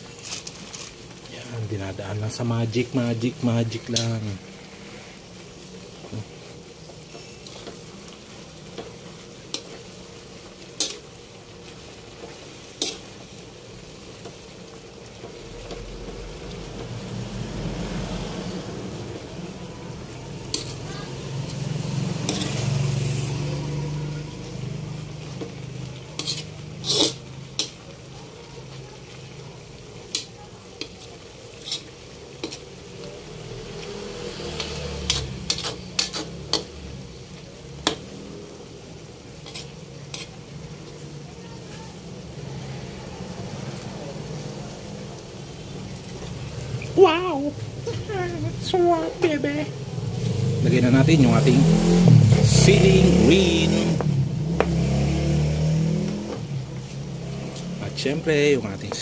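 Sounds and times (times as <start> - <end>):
food sizzling: 0.0 - 59.0
spatula scraping a metal wok: 3.8 - 14.5, 20.0 - 28.4, 29.6 - 38.3, 39.0 - 41.0.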